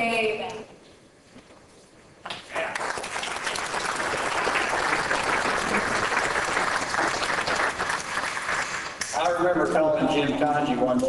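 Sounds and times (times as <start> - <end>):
audience applauding: 2.5 - 9.1.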